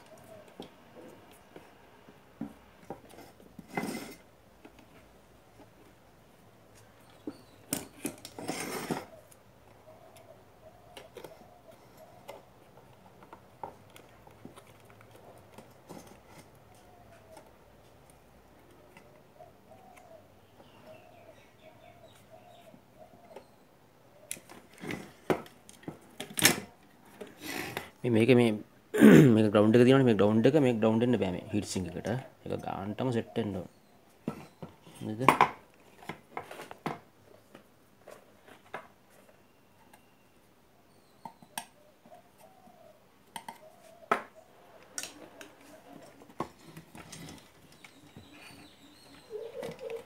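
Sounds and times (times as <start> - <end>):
dove cooing: 0.0 - 1.3, 8.9 - 12.7, 18.7 - 24.3, 41.4 - 50.0.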